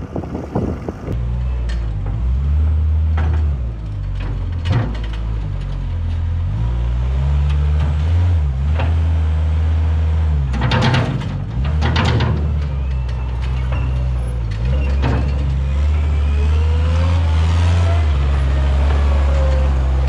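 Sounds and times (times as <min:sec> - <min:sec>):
diesel loader engine under load: 0:00.0 - 0:20.0
clattering: 0:03.2 - 0:06.4, 0:10.5 - 0:15.8.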